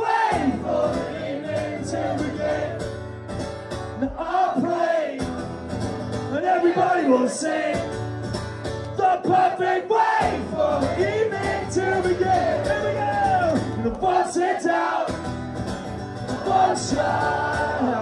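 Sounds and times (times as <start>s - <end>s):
strummed acoustic guitar: 0.0s - 18.0s
man singing: 4.0s - 5.2s, 6.3s - 7.8s, 9.0s - 15.1s, 16.3s - 18.0s.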